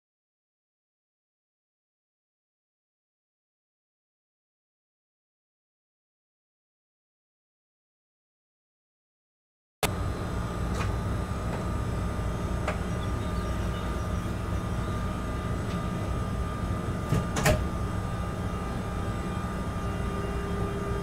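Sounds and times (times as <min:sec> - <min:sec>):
thin whine: 0:09.8 - 0:21.0
locomotive rumble: 0:09.9 - 0:21.0.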